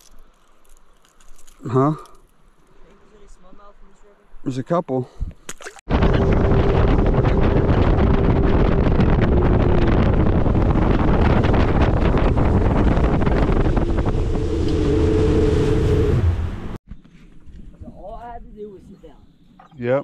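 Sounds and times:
boat engine droning: 5.9s - 16.8s
wind buffeting microphone: 5.9s - 16.8s.

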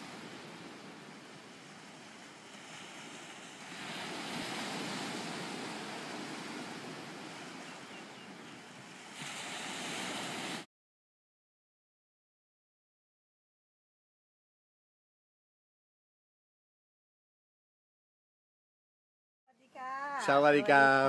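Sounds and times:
waves washing on sandy beach: 0.0s - 10.7s.

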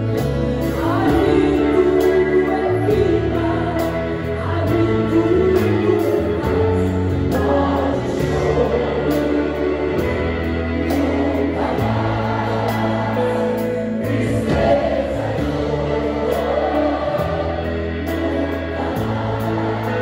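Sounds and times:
choir singing: 0.0s - 20.0s
church band with guitar and bass: 0.0s - 20.0s.

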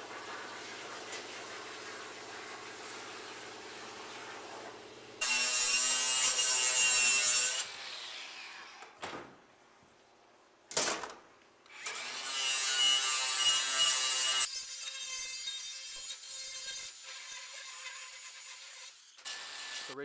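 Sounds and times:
angle grinder grinding steel: 5.2s - 8.6s, 11.8s - 20.0s.

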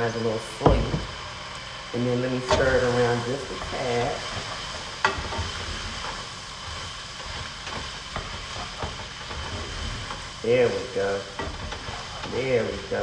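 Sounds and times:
rice sizzling in oil: 0.0s - 13.0s.

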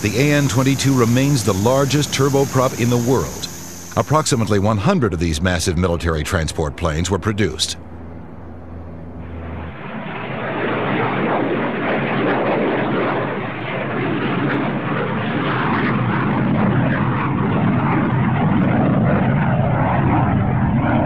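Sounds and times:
turboprop engines running: 0.0s - 21.0s.

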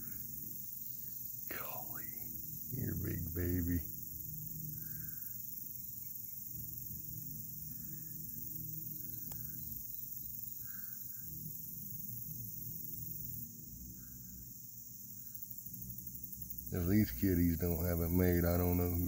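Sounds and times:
insect chirps: 0.0s - 19.0s
low hum: 1.5s - 5.4s, 6.3s - 14.6s.

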